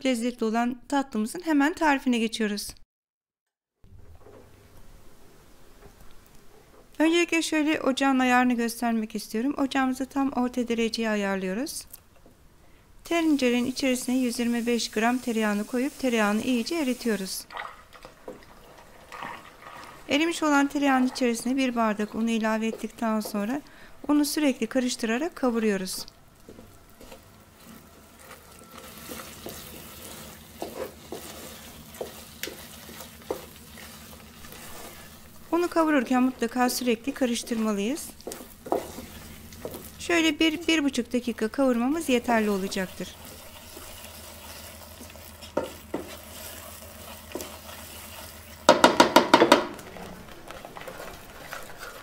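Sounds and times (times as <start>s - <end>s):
light sizzle: 11.6s - 49.0s
wooden spoon scraping pot: 17.5s - 23.7s, 26.5s - 40.6s, 41.7s - 52.0s
spoon knocking pot: 48.6s - 49.8s.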